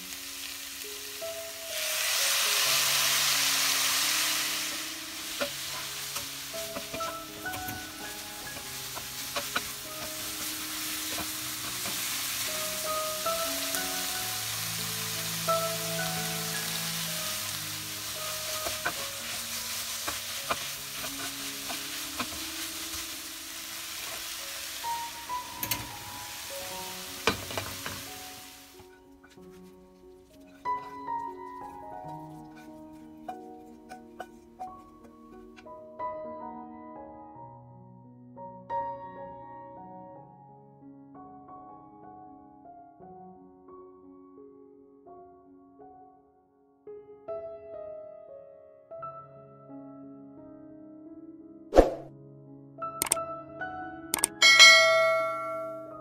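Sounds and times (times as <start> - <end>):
wine sizzling in hot wok: 0.0 - 35.7.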